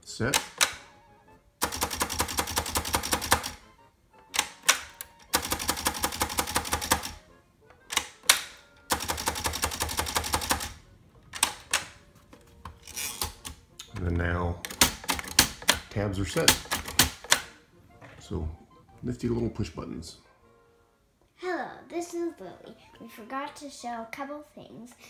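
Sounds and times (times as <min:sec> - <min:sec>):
typewriter rapid clicking: 0:01.6 - 0:03.6, 0:04.4 - 0:07.2, 0:08.9 - 0:10.8, 0:14.7 - 0:15.8, 0:16.5 - 0:17.4
typewriter key clacks: 0:16.5 - 0:17.4.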